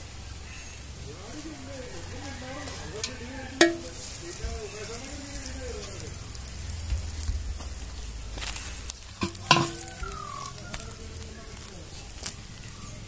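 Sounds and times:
chicken sizzling over embers: 0.0 - 13.0
clay pot knocking: 3.0 - 4.0, 9.2 - 10.4.

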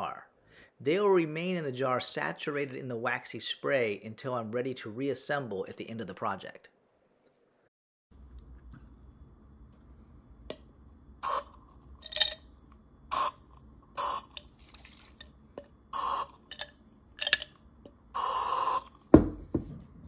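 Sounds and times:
aerosol can spraying: 14.0 - 14.4, 18.2 - 19.0.

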